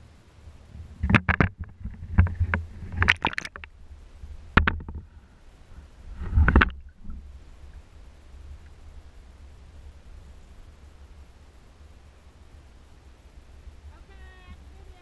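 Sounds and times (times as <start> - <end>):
water splashing against camera housing: 1.0 - 3.7, 4.5 - 5.0, 6.2 - 7.2.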